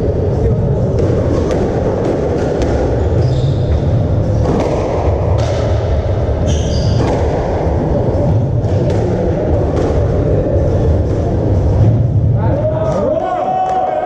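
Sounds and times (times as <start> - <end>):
steady low rumble: 0.0 - 13.2
squash ball hit by rackets: 0.9 - 10.4.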